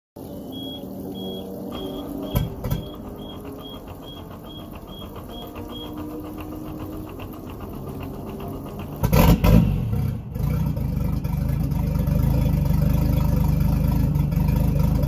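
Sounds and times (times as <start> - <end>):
boat engine running: 0.2 - 15.0
high warning beeper: 0.3 - 6.4.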